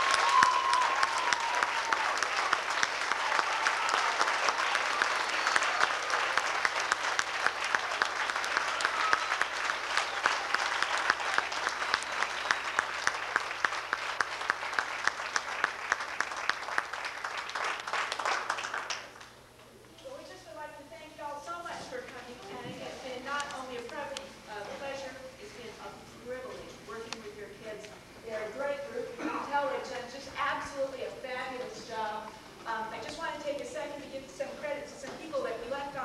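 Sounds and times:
audience applauding: 0.0 - 19.4.

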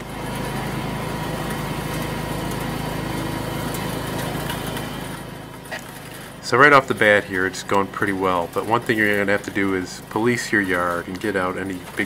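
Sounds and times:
lawn tractor engine running: 0.0 - 12.0
rotating brushes sweeping leaves: 0.0 - 12.0.

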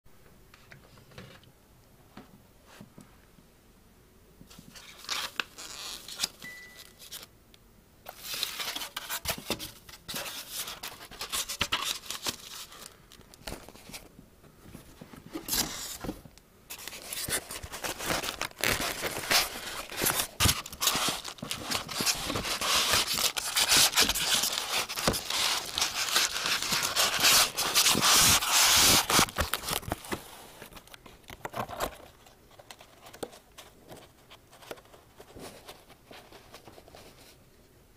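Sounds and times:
packing material and cardboard rustling: 8.1 - 14.1, 14.7 - 37.4.

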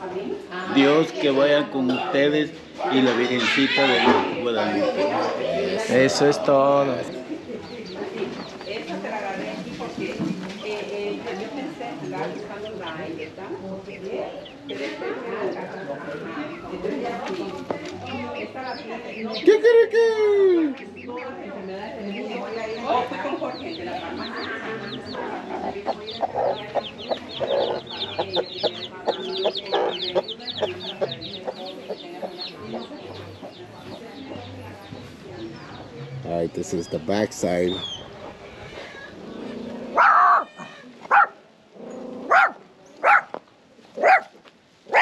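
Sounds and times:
chickens clucking: 0.2 - 41.3
small dog barking: 39.9 - 40.5, 41.1 - 41.4, 42.2 - 43.4, 44.0 - 45.0.

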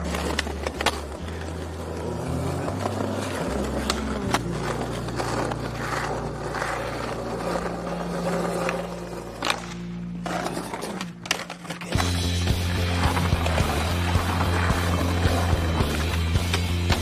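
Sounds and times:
background music: 0.0 - 17.0
skateboard wheels rolling: 0.0 - 17.0
skateboard clacks: 10.6 - 17.0
music with heavy bass line: 12.0 - 17.0.

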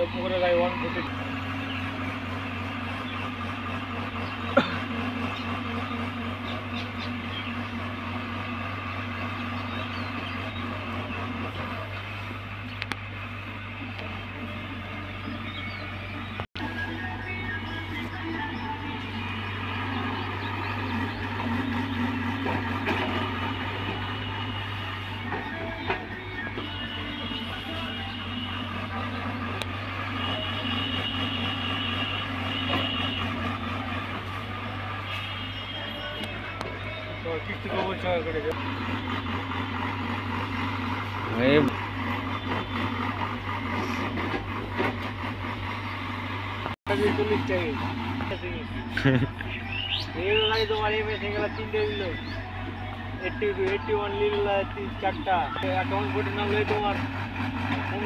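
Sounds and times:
excavator diesel engine humming: 0.0 - 58.0.

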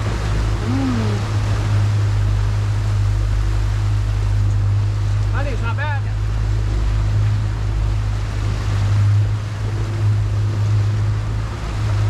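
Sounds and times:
outboard motor humming: 0.0 - 12.0
water rushing: 0.0 - 12.0
wind: 0.0 - 12.0.

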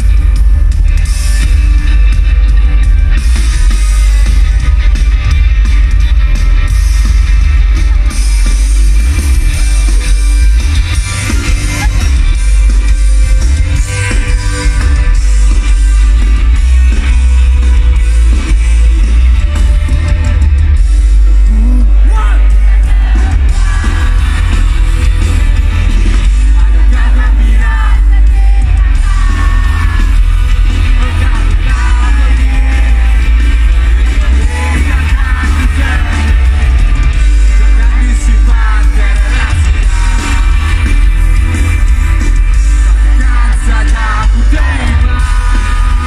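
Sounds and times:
heavy bass: 0.0 - 46.0
live rock band playing: 0.0 - 46.0
person singing: 21.4 - 25.2, 26.1 - 41.1, 42.8 - 46.0.

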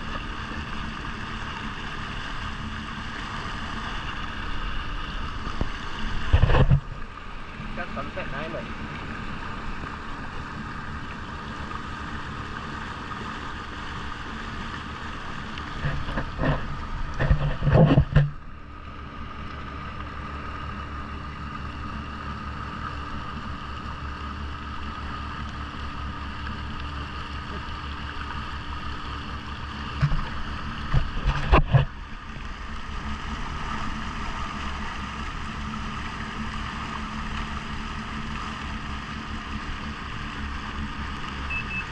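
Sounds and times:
jet ski engine running: 0.0 - 41.9
rough rushing water noise: 0.0 - 41.9.

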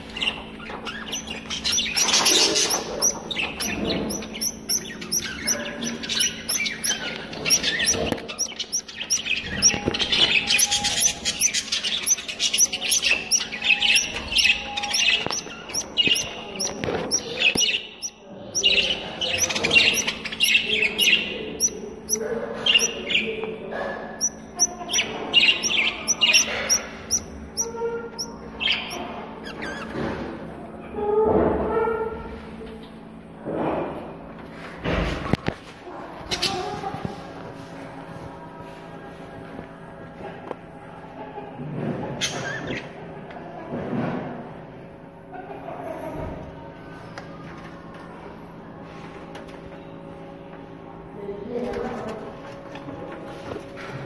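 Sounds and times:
budgerigars chirping: 0.0 - 23.4, 24.0 - 29.9.

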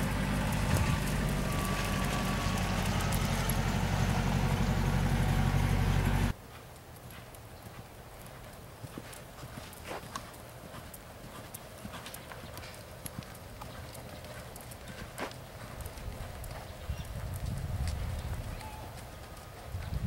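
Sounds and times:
low rumble: 0.0 - 6.3
hoofbeats on sand: 0.0 - 20.0.

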